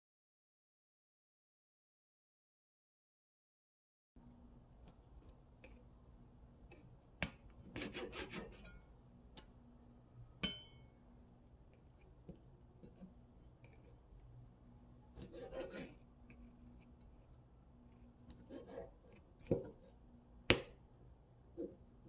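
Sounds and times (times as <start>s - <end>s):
faint steady hum: 4.2s - 22.0s
knife cutting on cutting board: 7.6s - 8.8s, 15.2s - 16.0s, 18.3s - 19.9s.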